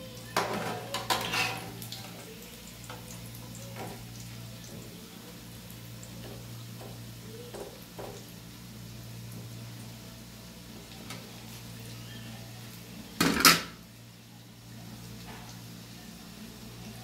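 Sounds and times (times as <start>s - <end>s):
burger patties sizzling in oil: 0.0s - 17.0s
metal spatula clattering on pan: 0.4s - 1.7s.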